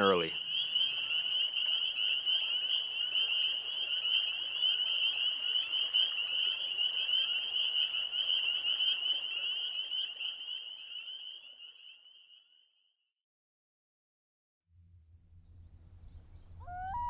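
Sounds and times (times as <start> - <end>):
chorus of frogs peeping: 0.0 - 12.6.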